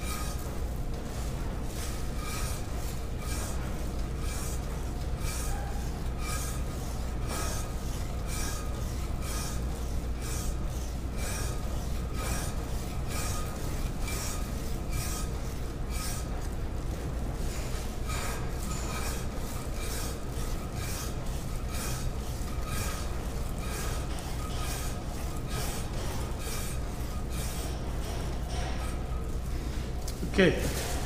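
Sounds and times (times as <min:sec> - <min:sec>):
hand rasp scraping plaster: 0:05.2 - 0:16.3, 0:17.5 - 0:27.7.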